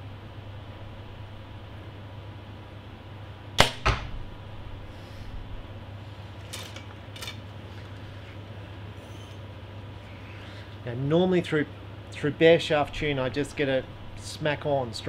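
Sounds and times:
steady low hum: 0.0s - 15.0s
arrow striking target: 3.6s - 4.3s.

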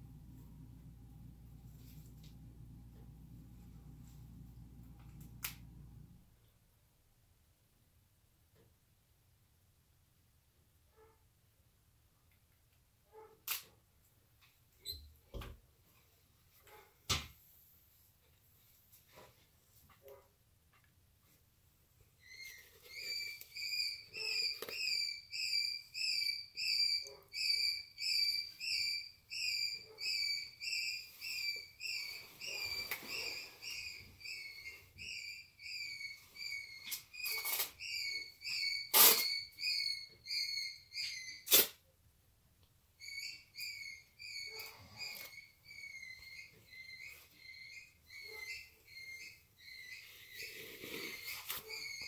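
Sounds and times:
parrot shrill calls: 43.0s - 50.4s.

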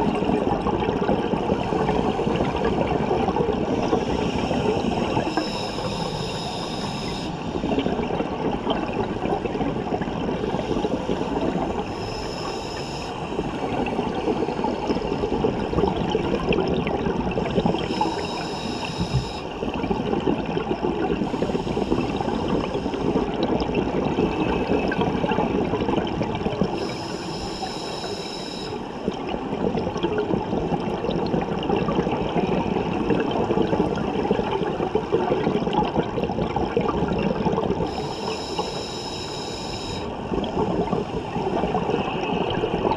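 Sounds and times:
gurgling exhaled bubbles: 0.0s - 27.7s, 28.7s - 38.7s, 40.0s - 42.9s
regulator hiss on inhale: 3.8s - 7.6s, 10.4s - 15.2s, 17.4s - 19.5s, 21.2s - 23.2s, 26.7s - 28.9s, 37.8s - 40.1s.

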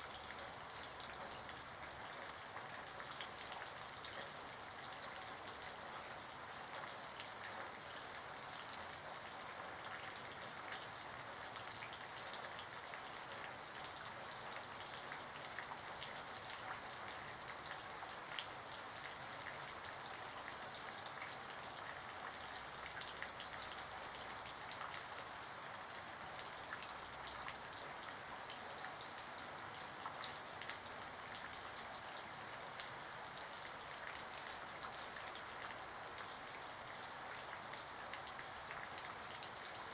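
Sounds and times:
rain falling: 0.0s - 39.9s
raindrops ticking close by: 0.0s - 39.9s.

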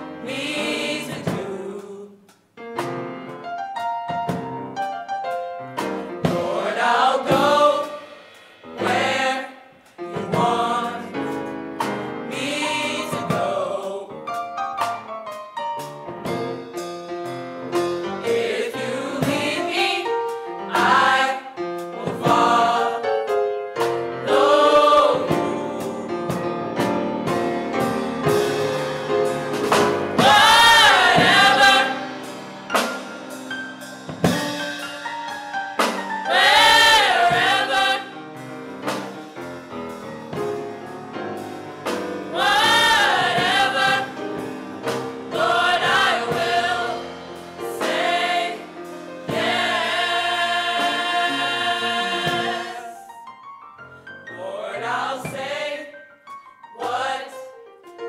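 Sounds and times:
gospel choir singing: 0.0s - 2.3s, 6.0s - 14.3s, 18.0s - 34.8s, 35.8s - 40.4s, 41.8s - 53.2s, 54.3s - 56.0s, 56.8s - 57.5s.

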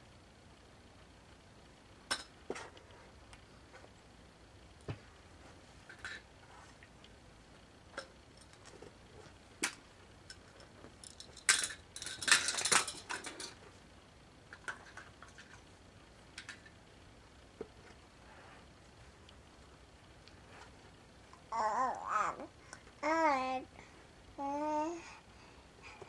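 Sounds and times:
plastic toys clattering: 9.6s - 13.6s, 14.5s - 15.6s, 16.4s - 16.8s.

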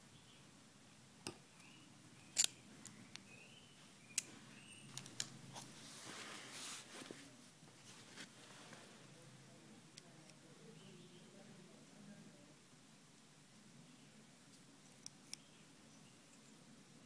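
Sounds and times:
handling rustle: 5.5s - 9.0s.

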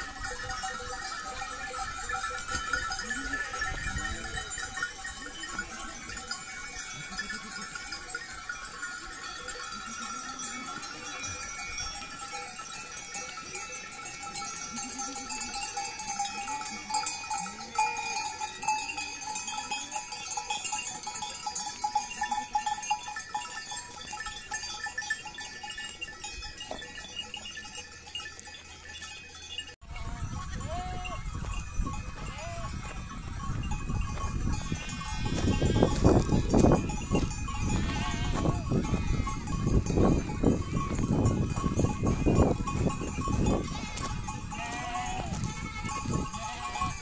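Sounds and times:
sheep bells jingling: 0.0s - 47.0s
sheep bleating: 32.2s - 33.0s, 34.5s - 36.1s, 37.6s - 39.5s, 43.6s - 47.0s.

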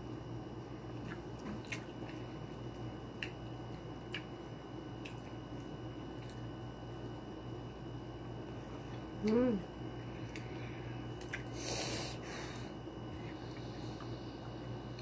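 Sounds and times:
person chewing wetly: 0.9s - 7.2s, 10.1s - 11.6s.

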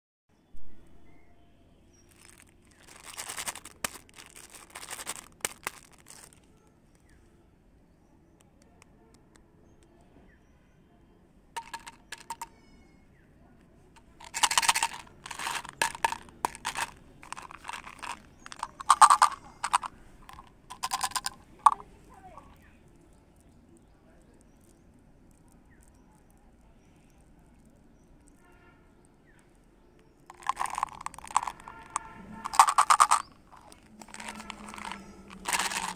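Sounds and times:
plastic wrappers crinkling: 2.0s - 6.6s, 14.0s - 26.4s, 30.3s - 35.9s.

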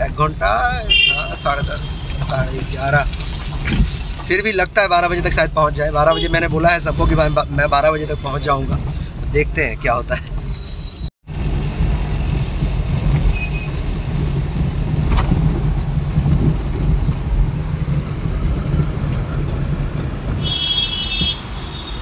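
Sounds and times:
car engine and road rumble: 0.0s - 22.0s
high car horn: 0.8s - 1.8s, 6.1s - 7.4s, 20.4s - 22.0s.

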